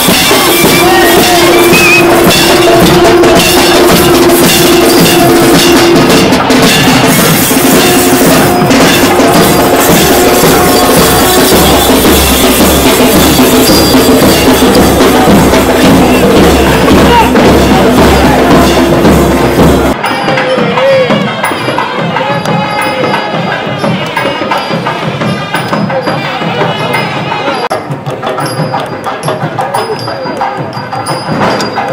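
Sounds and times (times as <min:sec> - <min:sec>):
loud drumming: 0:00.0 - 0:31.9
wavering melody line: 0:07.0 - 0:20.0.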